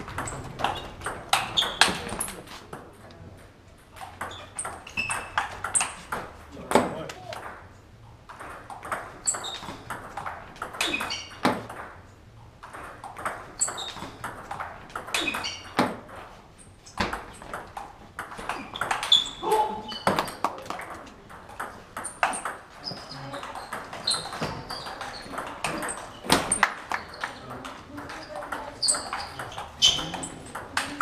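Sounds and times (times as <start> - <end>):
table tennis ball clicking: 8.3 - 12.0, 12.6 - 15.8.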